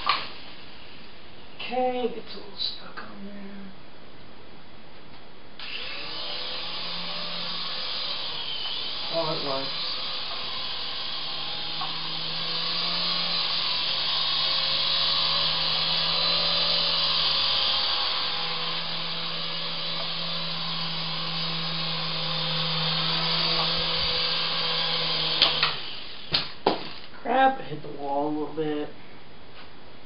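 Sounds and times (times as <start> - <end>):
toy helicopter rotor whine: 5.6 - 27.1.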